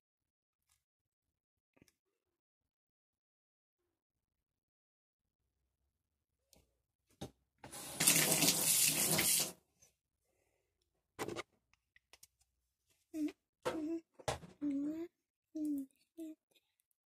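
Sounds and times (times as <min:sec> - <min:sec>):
water running from tap: 0:07.7 - 0:09.6.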